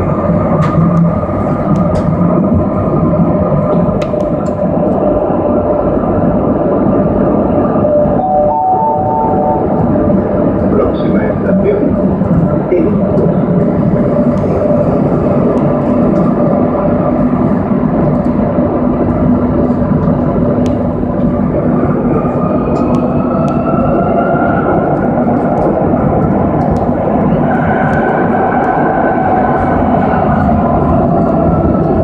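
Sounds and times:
whine rising in pitch: 0:00.0 - 0:11.2
train wheels rumbling on rail: 0:00.0 - 0:32.0.

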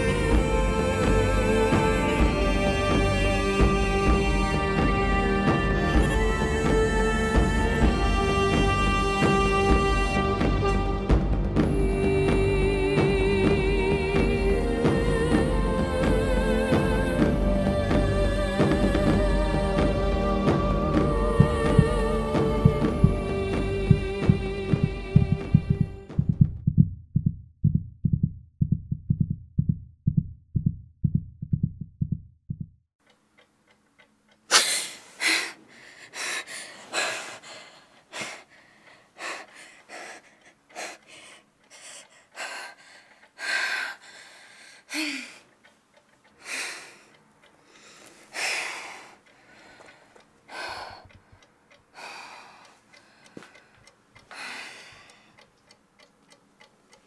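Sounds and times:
low heartbeat thumps: 0:00.0 - 0:32.8
woman breathing heavily and gasping: 0:34.5 - 0:45.6, 0:46.3 - 0:55.5.

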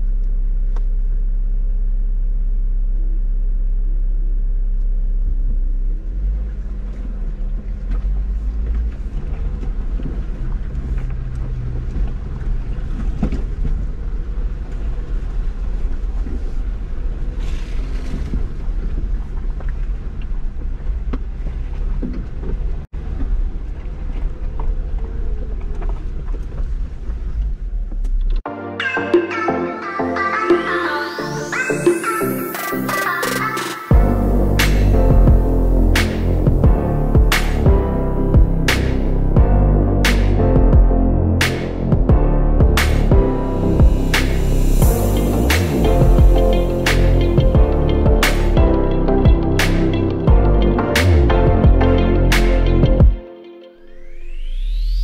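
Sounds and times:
off-road vehicle engine rumble: 0:00.0 - 0:28.5, 0:33.9 - 0:53.1
tires scraping over rock: 0:06.1 - 0:28.2.

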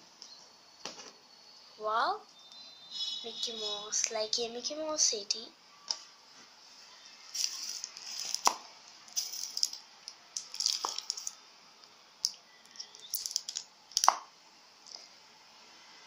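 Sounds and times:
plastic and paper clicks and crackles: 0:07.4 - 0:11.4, 0:12.2 - 0:14.2.

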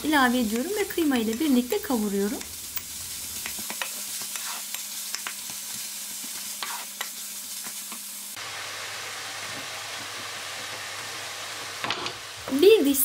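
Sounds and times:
meat sizzling in a frying pan: 0:00.0 - 0:13.0
wooden spatula scraping a pan: 0:03.7 - 0:04.8, 0:06.5 - 0:07.1.

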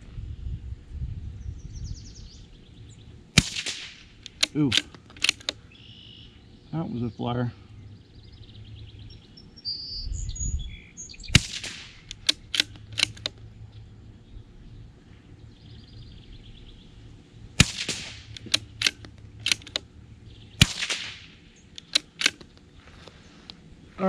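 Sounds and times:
rifle shots: 0:03.3 - 0:05.6, 0:11.2 - 0:13.4, 0:17.6 - 0:19.8, 0:20.6 - 0:22.5
rifle bolt clicks: 0:03.4 - 0:05.6, 0:11.4 - 0:13.4, 0:17.6 - 0:19.9, 0:20.6 - 0:22.7.

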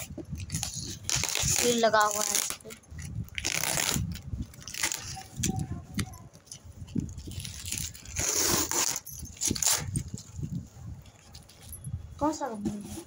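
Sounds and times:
packing tape peeling and tearing: 0:00.0 - 0:06.1, 0:06.9 - 0:10.4
cardboard scraping: 0:12.5 - 0:13.0.

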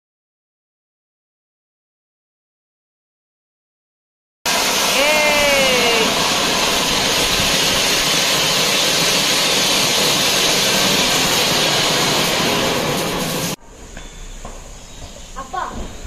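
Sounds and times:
fireworks spraying sparks hissing: 0:04.5 - 0:16.0.

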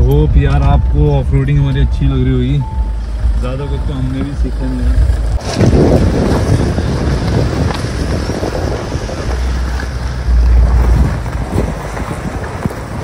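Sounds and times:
wind buffeting microphone: 0:04.1 - 0:13.0.

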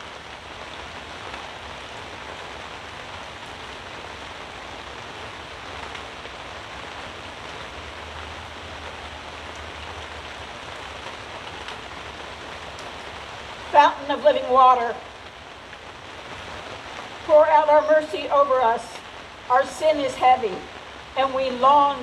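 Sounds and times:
rain on fabric canopy: 0:00.0 - 0:22.0.

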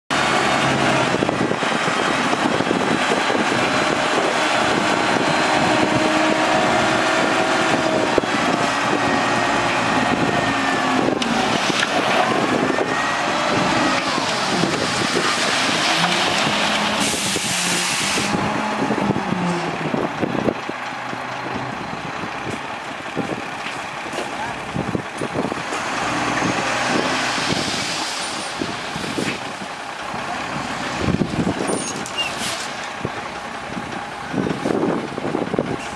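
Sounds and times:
diesel truck engine revving: 0:00.1 - 0:35.9
dirt sliding out: 0:03.7 - 0:19.7.

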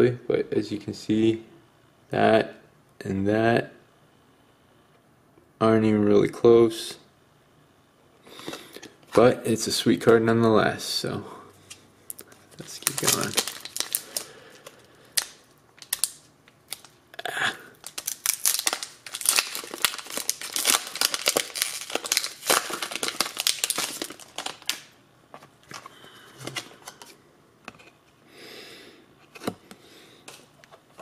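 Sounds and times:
cards rustling: 0:11.7 - 0:17.0, 0:17.8 - 0:27.2
foil pack crinkling: 0:12.1 - 0:17.0, 0:17.7 - 0:27.1.

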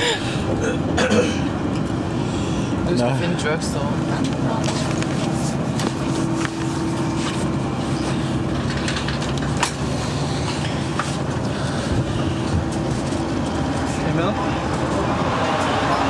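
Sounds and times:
train running noise: 0:00.0 - 0:16.0.

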